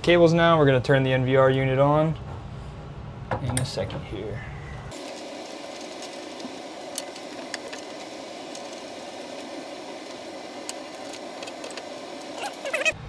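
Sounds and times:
cables clicking and rustling: 0:05.0 - 0:13.0.

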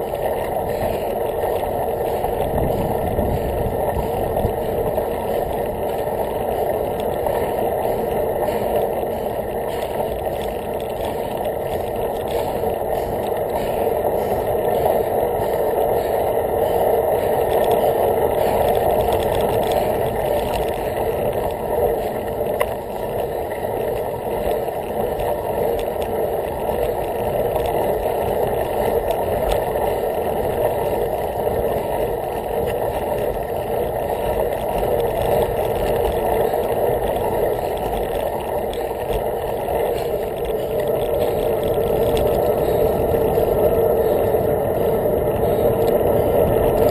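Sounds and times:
wind on microphone: 0:00.0 - 0:24.0, 0:26.6 - 0:46.9
bicycle tyres rolling on path: 0:00.0 - 0:46.9.

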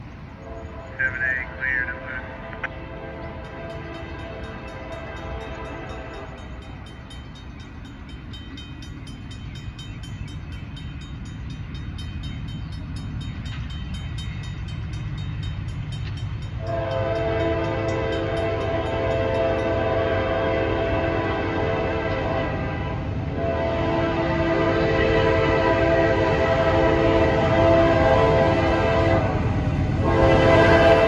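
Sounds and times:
train rumbling: 0:00.0 - 0:31.0
locomotive air horn chord: 0:00.4 - 0:06.6, 0:16.6 - 0:31.0.

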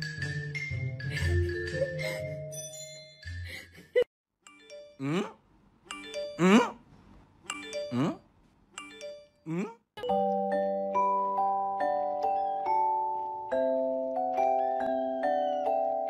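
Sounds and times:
chiming mallet percussion music: 0:04.5 - 0:05.2, 0:10.0 - 0:16.0.

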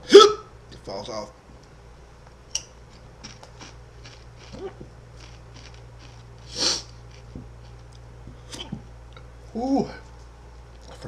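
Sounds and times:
man chewing crunchy chip: 0:02.8 - 0:08.0
sharp burst of breath: 0:06.5 - 0:06.9.

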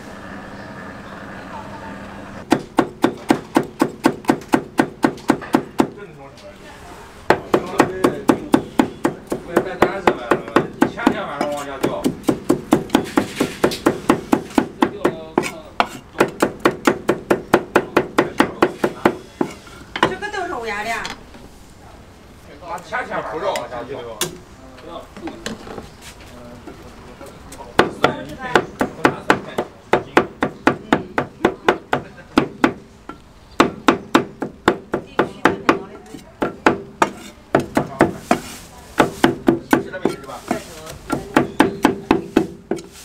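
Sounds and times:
cleavers chopping on wooden block: 0:02.4 - 0:06.0, 0:07.3 - 0:20.2, 0:27.8 - 0:32.9, 0:33.6 - 0:42.9.

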